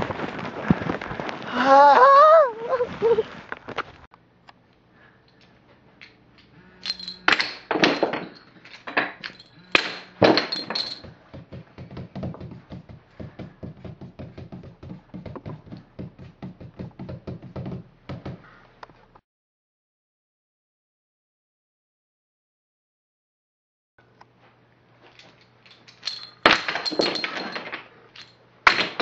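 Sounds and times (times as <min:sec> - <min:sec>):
loud thuds and knocks: 0:10.1 - 0:18.4.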